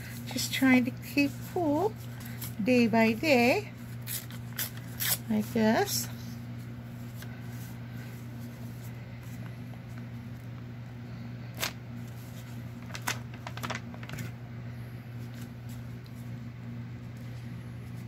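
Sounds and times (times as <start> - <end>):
steady low hum: 0.0 - 18.0
paper rustling: 11.6 - 14.4.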